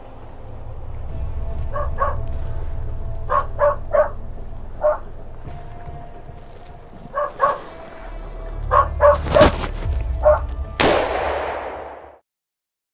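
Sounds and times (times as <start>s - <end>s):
dog barking: 1.7s - 2.3s, 3.2s - 4.2s, 4.8s - 5.1s, 7.0s - 7.9s, 8.6s - 10.5s.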